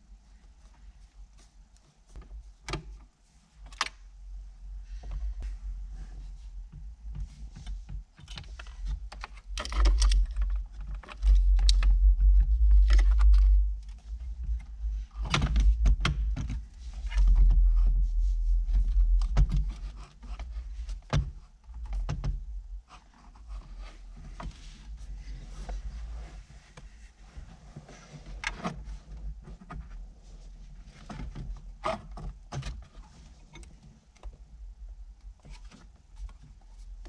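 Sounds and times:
low rumble from tugging: 9.9 - 19.9.

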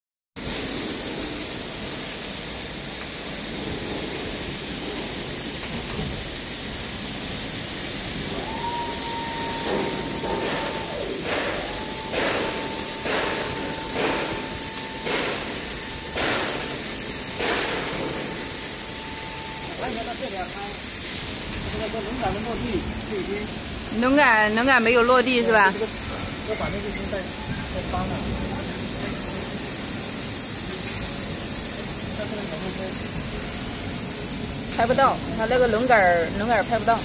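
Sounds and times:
machinery hiss: 0.4 - 37.0
short hissing bursts: 0.4 - 37.0
steady whine: 4.8 - 37.0.

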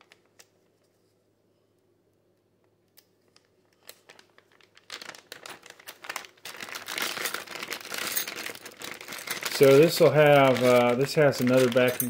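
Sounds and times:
plastic bag crinkling: 3.3 - 12.0.

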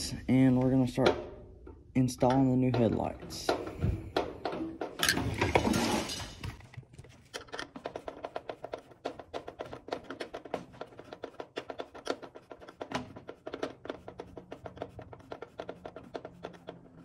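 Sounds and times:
screwdriver clicks and scrapes: 7.1 - 10.5.

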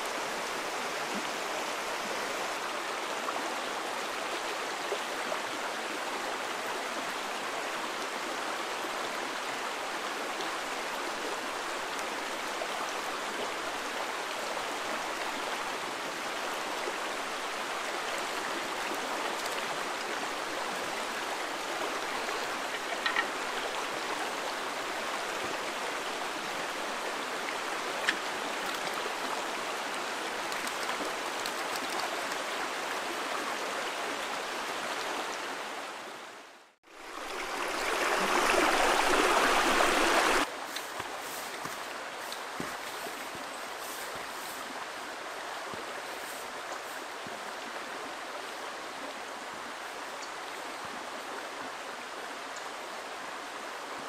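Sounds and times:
stream flowing over stones: 0.0 - 54.0.

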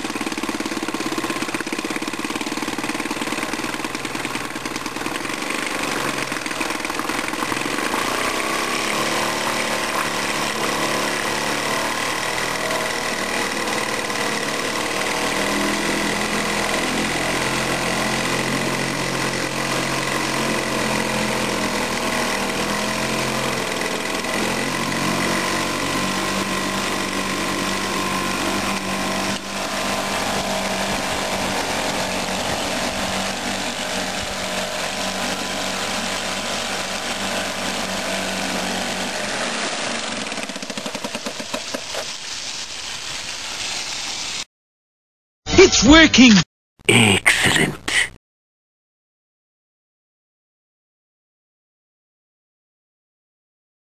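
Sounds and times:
outboard motor running: 0.0 - 42.2
propeller churning water: 0.0 - 44.2.

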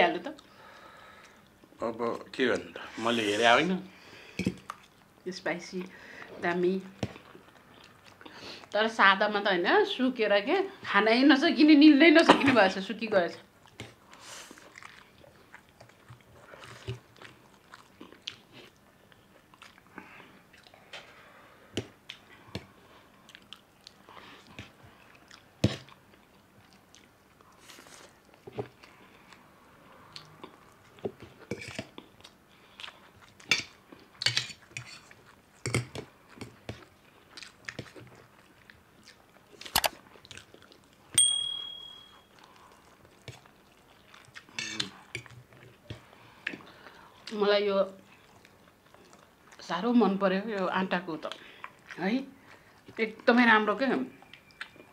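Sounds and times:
noodles slurped and chewed: 13.7 - 21.0
forks scraping steel plates: 44.6 - 44.9
fork clinking on plate: 44.6 - 45.3.

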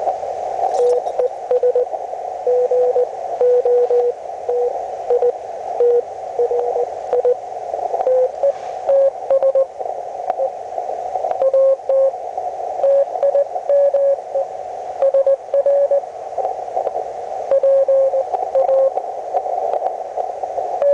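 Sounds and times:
receiver hiss: 0.0 - 20.9
morse code beeps: 0.8 - 1.9, 2.5 - 7.4, 8.0 - 9.7, 11.3 - 12.1, 12.8 - 14.2, 15.0 - 16.0, 17.5 - 19.0.

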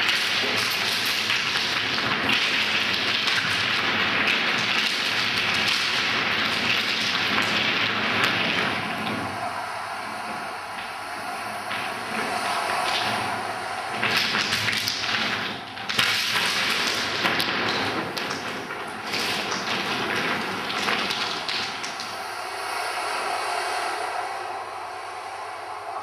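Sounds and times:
steady hiss: 0.0 - 26.0.

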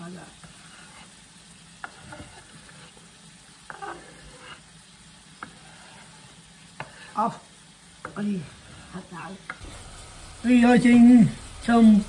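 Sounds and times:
chicken sizzling in oil: 0.0 - 12.0
spatula scraping chopping board: 0.4 - 1.2, 1.8 - 4.7, 5.4 - 7.2.

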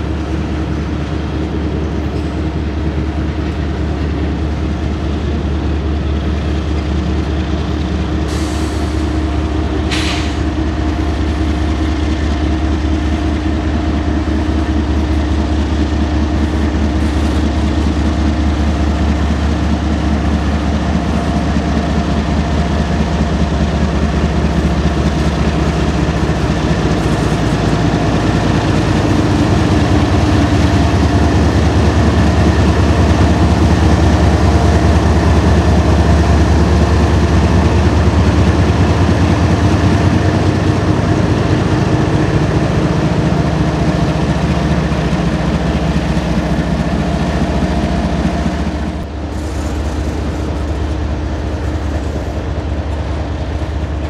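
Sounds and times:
freight train rumbling past: 0.0 - 54.0
locomotive engines droning: 0.0 - 54.0
short hisses: 9.9 - 10.4.

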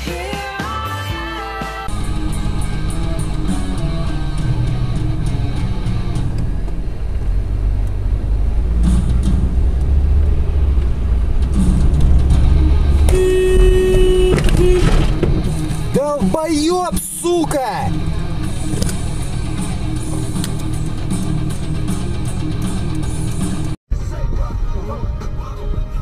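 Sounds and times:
background music: 0.0 - 7.4, 8.3 - 26.0
car driving rumble: 1.9 - 26.0
car horn: 11.6 - 17.5.

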